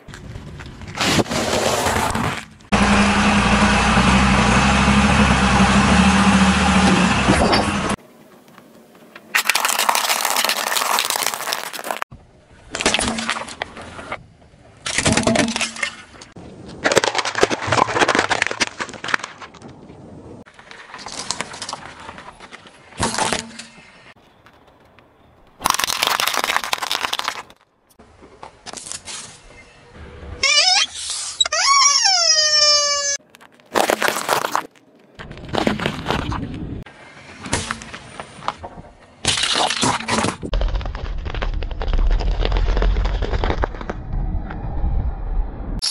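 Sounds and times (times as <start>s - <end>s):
tyre crushing brittle objects: 9.3s - 12.1s, 16.7s - 19.7s, 20.5s - 24.8s, 25.6s - 27.7s, 33.2s - 36.4s, 39.2s - 44.0s.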